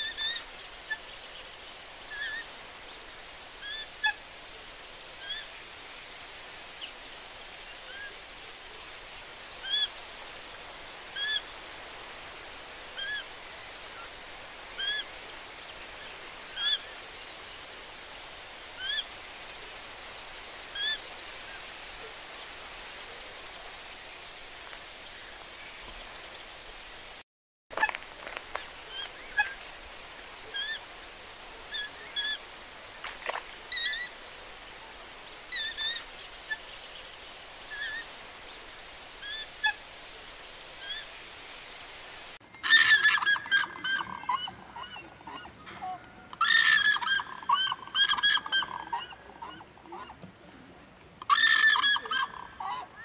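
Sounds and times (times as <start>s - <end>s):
waterbird calls: 0.0s - 1.3s, 2.0s - 2.6s, 3.6s - 4.3s, 5.2s - 5.6s, 9.6s - 10.0s, 11.1s - 11.6s, 12.9s - 13.3s, 14.0s - 15.3s, 15.9s - 17.4s, 18.8s - 19.1s, 20.7s - 22.2s, 27.7s - 41.3s, 42.6s - 50.2s, 51.2s - 53.0s
steady hiss: 0.0s - 42.4s.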